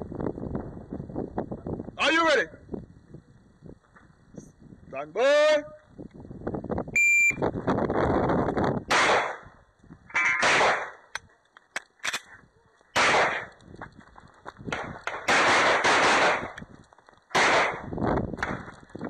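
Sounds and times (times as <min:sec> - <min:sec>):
shot timer beep: 0:07.0 - 0:07.4
pistol shots: 0:08.9 - 0:09.5, 0:10.3 - 0:11.1, 0:13.0 - 0:13.5, 0:14.7 - 0:16.6, 0:17.3 - 0:18.7
sharp clicks: 0:10.4 - 0:12.3.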